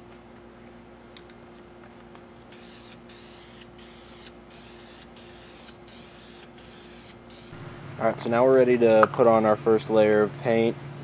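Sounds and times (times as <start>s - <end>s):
steady low hum: 0.0s - 11.0s
aerosol spray can hissing: 2.5s - 7.6s.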